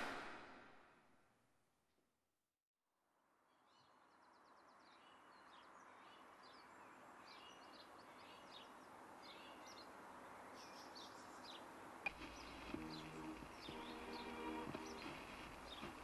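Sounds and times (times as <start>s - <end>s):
birds chirping and trilling: 3.7s - 16.0s
steady hiss: 12.1s - 16.0s.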